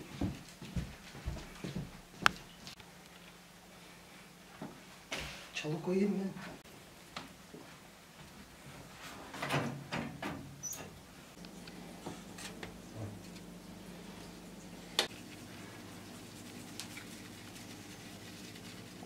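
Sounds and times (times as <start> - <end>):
faint steady hum: 10.8 - 19.0.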